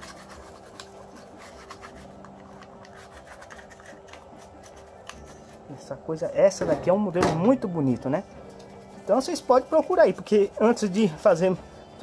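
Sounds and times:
brush scratching on plastic: 0.0 - 5.8, 8.4 - 11.4.

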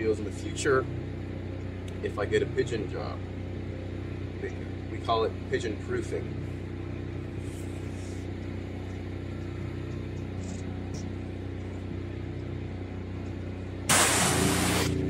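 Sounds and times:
low mechanical hum: 0.0 - 15.0
water spray hissing: 13.9 - 15.0.

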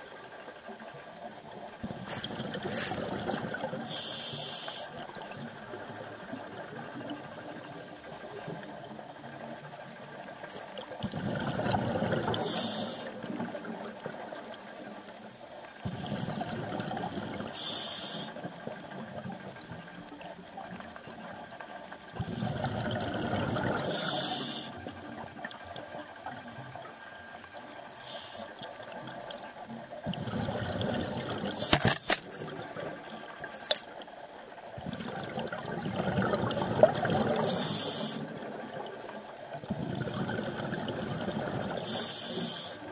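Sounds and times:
exhaled bubbles rushing: 1.8 - 3.9, 10.8 - 12.6, 15.9 - 17.6, 22.0 - 24.1, 30.0 - 33.5, 34.6 - 42.0
diver breathing through regulator: 3.9 - 4.9, 37.3 - 38.3, 41.8 - 42.9
hiss of inhaled air: 3.9 - 4.9, 12.4 - 13.2, 17.6 - 18.4, 23.8 - 24.8, 28.0 - 28.6, 37.4 - 38.3, 41.8 - 42.9.

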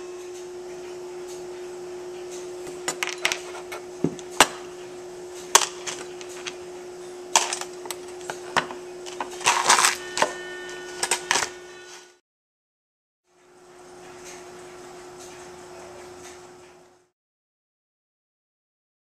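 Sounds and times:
steady low hum: 0.0 - 12.2.

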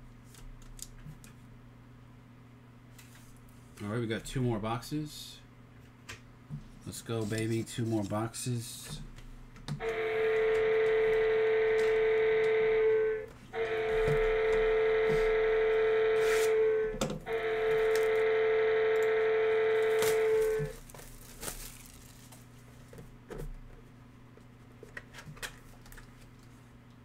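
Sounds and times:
electronic alarm buzzing: 9.8 - 20.8
hands rustling card boxes: 19.7 - 23.1.

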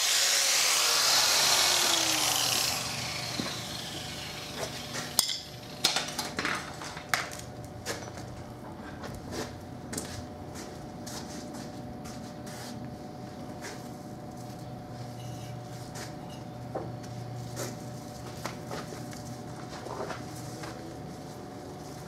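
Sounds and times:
angle grinder spinning down: 0.0 - 6.1.

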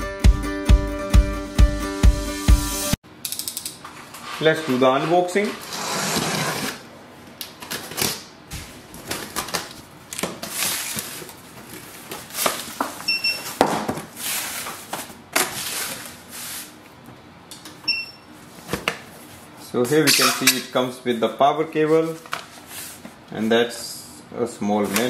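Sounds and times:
cardboard scraping rustles: 4.0 - 6.8.

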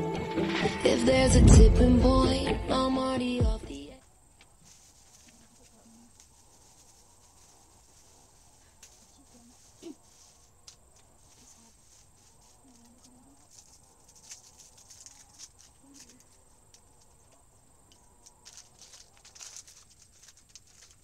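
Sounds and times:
hands handling small objects: 4.4 - 21.0
plastic bag rustling: 4.5 - 17.3, 18.1 - 21.0.

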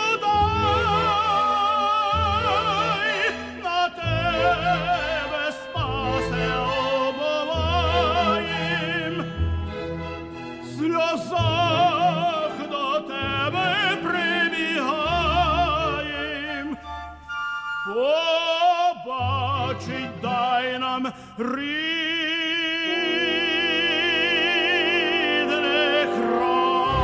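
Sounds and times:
operatic singing: 0.0 - 27.0
instrumental accompaniment: 22.9 - 27.0.

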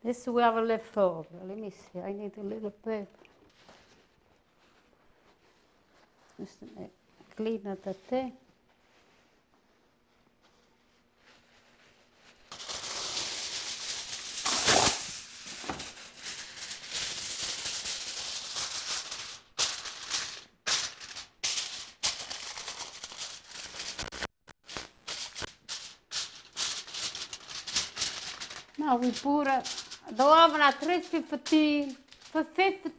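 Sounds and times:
aluminium foil crackling: 10.8 - 32.9.

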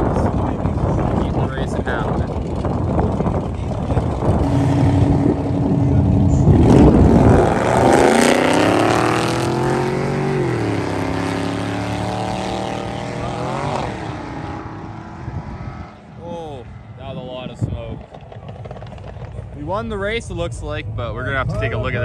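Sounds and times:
drag cars idling: 0.0 - 8.0
drag car engines revving: 0.0 - 22.0.

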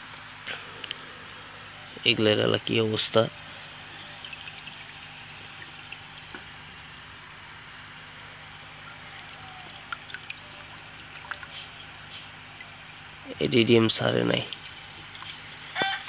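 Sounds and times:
water trickling: 2.5 - 15.8.

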